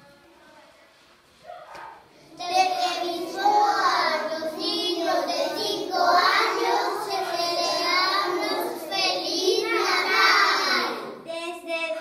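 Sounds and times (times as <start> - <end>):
children singing in unison: 2.4 - 11.2.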